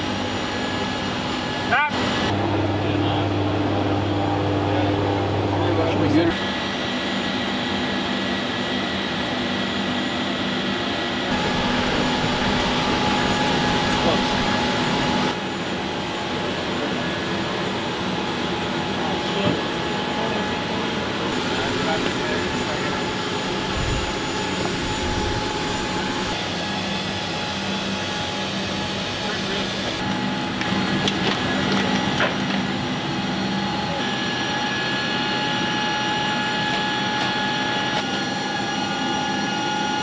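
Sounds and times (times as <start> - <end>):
aircraft machinery drone: 0.0 - 40.0
whining tones: 0.0 - 40.0
low hum: 20.1 - 26.5.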